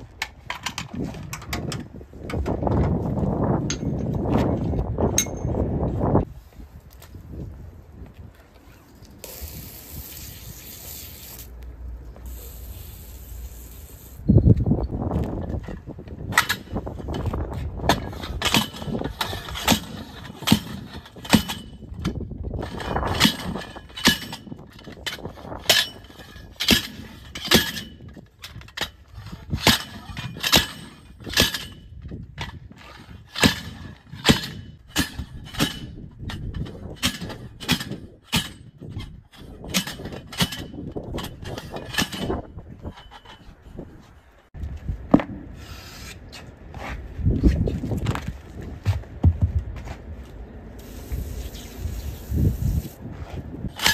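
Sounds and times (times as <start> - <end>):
tire bar clanging on steel rim: 3.6 - 5.6, 15.7 - 43.8.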